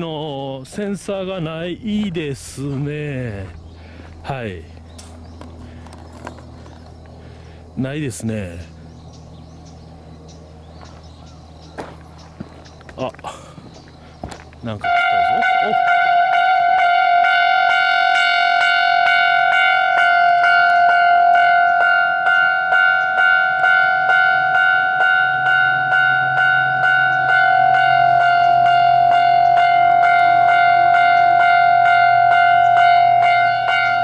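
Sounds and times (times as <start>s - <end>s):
low hum: 0.0s - 34.0s
level crossing warning bell: 14.7s - 34.0s.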